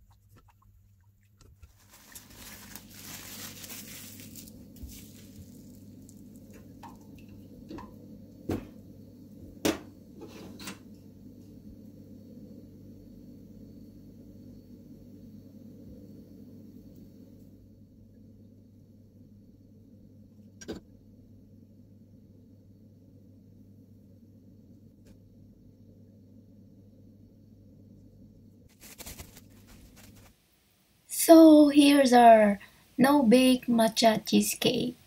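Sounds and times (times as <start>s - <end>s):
faint steady hum: 0.0s - 35.0s
rustling: 1.5s - 6.6s, 28.7s - 30.5s.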